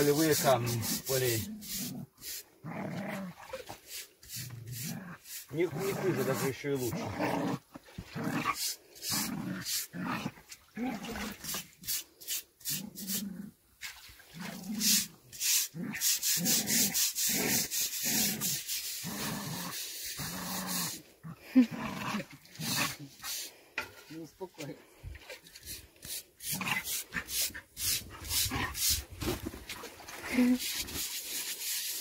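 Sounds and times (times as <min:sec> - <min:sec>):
sponge scrubbing wet stone: 0:00.0 - 0:02.5, 0:03.2 - 0:06.9, 0:11.0 - 0:21.0, 0:24.1 - 0:32.0
dogs growling: 0:00.0 - 0:03.6, 0:04.3 - 0:11.5, 0:12.8 - 0:13.6, 0:15.7 - 0:23.7, 0:26.4 - 0:29.4.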